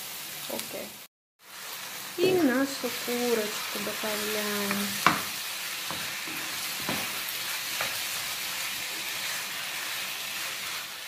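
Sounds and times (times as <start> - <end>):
chicken sizzling in a frying pan: 0.0 - 11.0
spatula scraping and tapping pan: 4.6 - 9.4.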